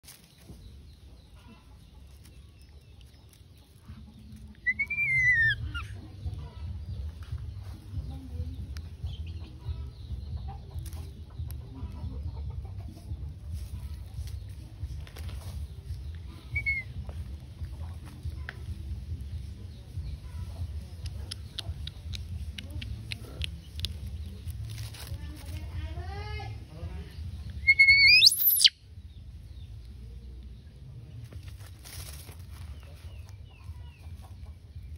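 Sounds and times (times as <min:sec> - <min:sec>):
dry leaves rustling: 0:00.0 - 0:06.0, 0:13.4 - 0:19.7, 0:23.6 - 0:28.6, 0:31.2 - 0:34.9
small birds chirping: 0:00.0 - 0:34.9
steady low rumble: 0:00.6 - 0:27.8
faint animal calls: 0:27.6 - 0:28.7.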